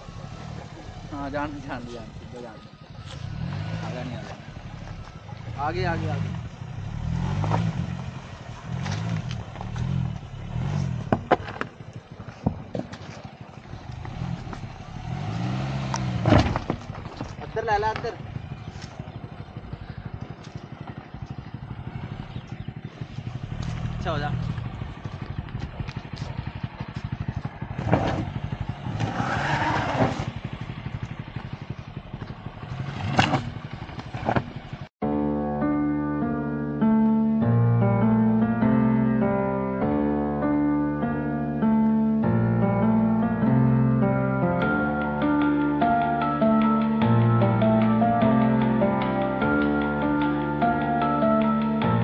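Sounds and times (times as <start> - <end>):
car engine revving: 0.0 - 34.9
stones knocking under tyres: 8.6 - 19.4, 23.2 - 34.9.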